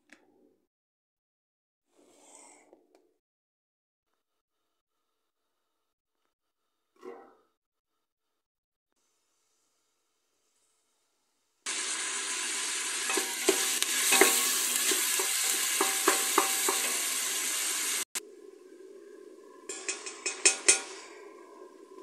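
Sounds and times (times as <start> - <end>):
onion and meat sizzling in oil: 11.7 - 18.2
wooden spoon knocking on pot: 15.2 - 17.0.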